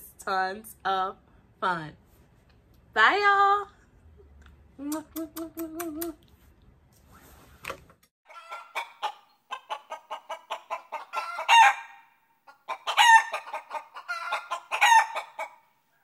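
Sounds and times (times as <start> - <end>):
hen cackling: 8.3 - 15.7
loud hen calls: 8.3 - 15.7.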